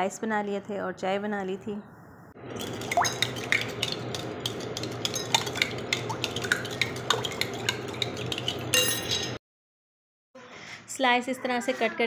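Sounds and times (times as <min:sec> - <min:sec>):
metal spoon beating batter: 0:02.6 - 0:09.4
spoon clinking against glass bowl: 0:02.9 - 0:09.4.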